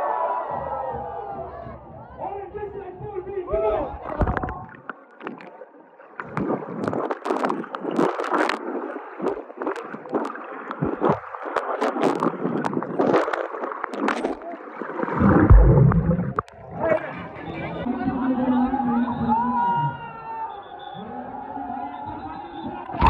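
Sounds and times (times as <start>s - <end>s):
water splashing in a pool: 4.1s - 16.8s.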